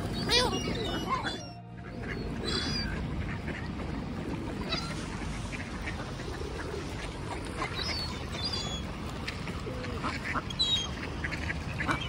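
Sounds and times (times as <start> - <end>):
ducks quacking: 0.0 - 8.3, 9.5 - 12.0
steady background noise: 0.0 - 12.0.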